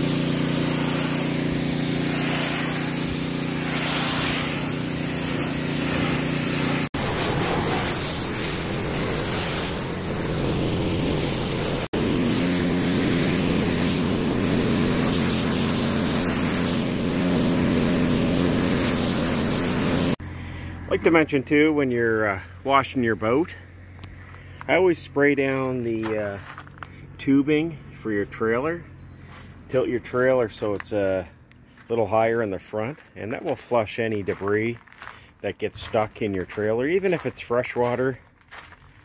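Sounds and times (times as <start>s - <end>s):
water spraying from wand: 0.0s - 20.2s
pressure washer engine hum: 0.0s - 22.6s.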